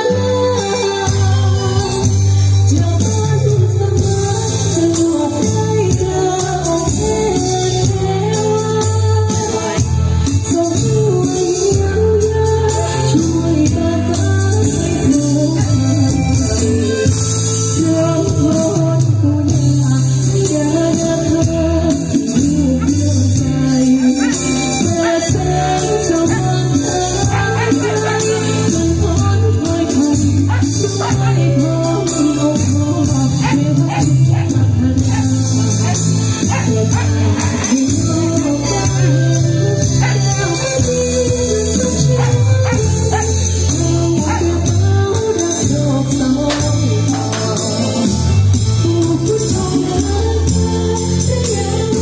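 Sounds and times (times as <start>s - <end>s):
amplified backing music: 0.0s - 52.0s
sustained bass line: 0.0s - 52.0s
woman singing into microphone: 0.0s - 52.0s
shaken percussion: 20.5s - 52.0s.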